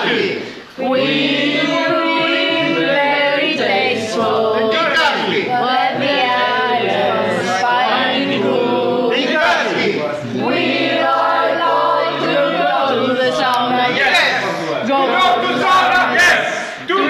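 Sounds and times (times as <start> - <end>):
group of people singing: 0.0 - 17.0.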